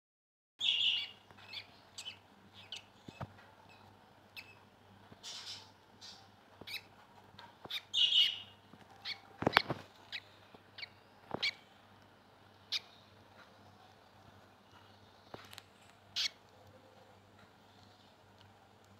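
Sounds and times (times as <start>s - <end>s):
chicks peeping: 0.6s - 11.7s
faint low hum: 0.6s - 18.9s.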